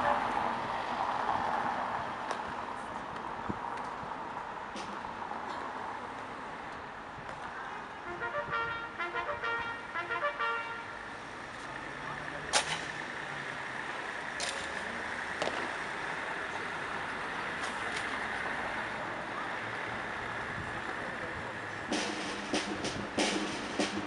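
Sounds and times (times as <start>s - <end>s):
city traffic noise: 0.0s - 24.0s
trumpet call: 8.0s - 11.0s.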